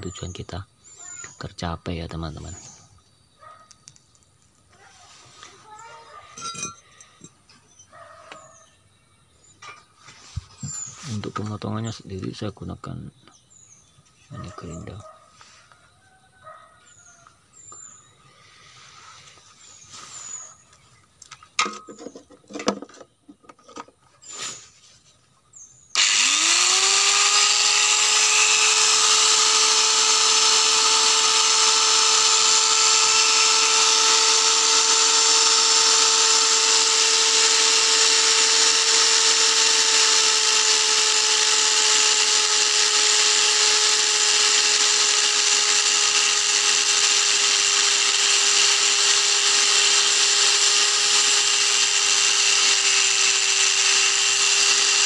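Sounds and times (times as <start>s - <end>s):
grinder cutting steel plate: 6.4s - 6.8s, 26.0s - 55.0s
angle grinder whining: 6.4s - 7.4s, 25.9s - 55.0s.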